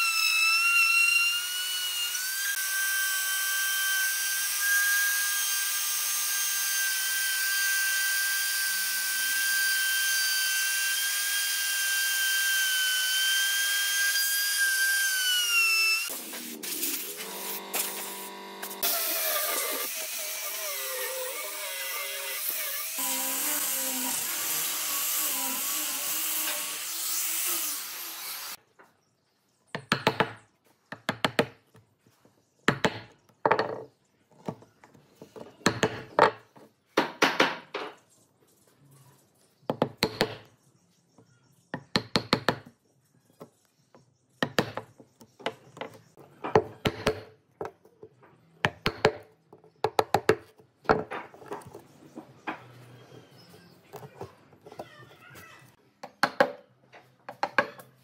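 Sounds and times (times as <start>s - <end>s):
angle grinder sanding wood: 8.4s - 28.6s.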